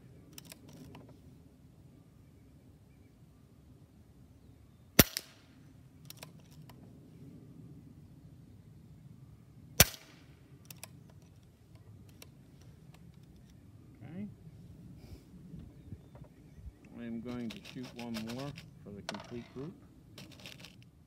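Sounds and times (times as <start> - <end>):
air rifle shots: 5.0 - 5.5, 9.8 - 10.3.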